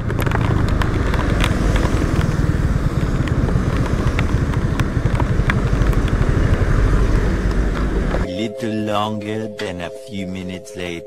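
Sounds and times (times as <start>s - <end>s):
motorcycle engine running: 0.0s - 8.3s
sharp ticks: 0.0s - 8.3s.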